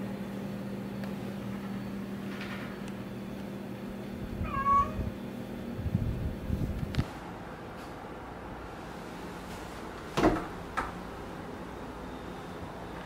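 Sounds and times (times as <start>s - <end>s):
steady low hum: 0.0s - 13.0s
cat meowing: 4.4s - 5.1s.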